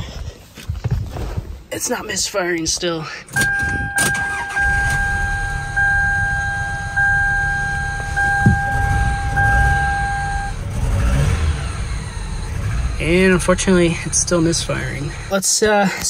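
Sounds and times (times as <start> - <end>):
dashboard warning chime: 3.4 - 10.6
car engine idling roughly: 11.8 - 15.4.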